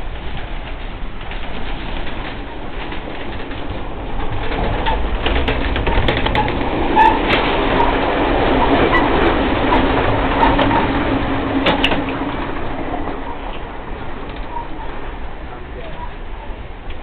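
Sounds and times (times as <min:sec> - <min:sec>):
train wheels rumbling on rails: 0:00.0 - 0:17.0
rattling and clanking knocks: 0:00.4 - 0:12.6.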